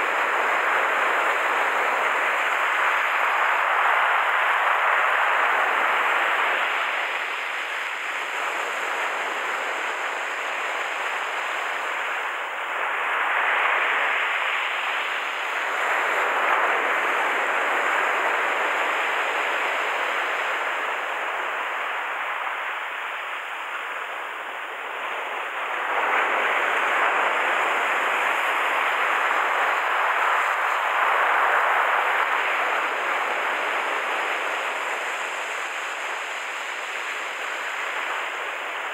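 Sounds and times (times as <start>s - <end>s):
surf washing on beach: 0.0s - 38.9s.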